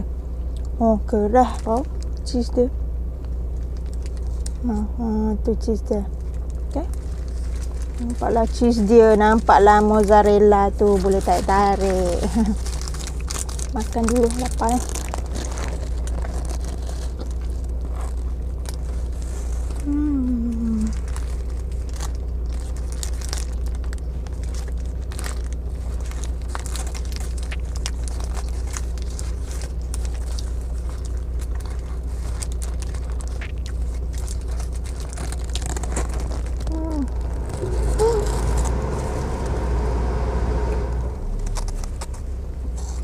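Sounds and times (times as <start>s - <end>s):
steady low hum: 0.0s - 43.0s
paper wrapper crinkling: 3.5s - 4.9s, 6.1s - 39.1s, 41.3s - 43.0s
person humming: 19.8s - 21.0s, 36.7s - 38.7s
chewing and biting: 20.5s - 37.8s.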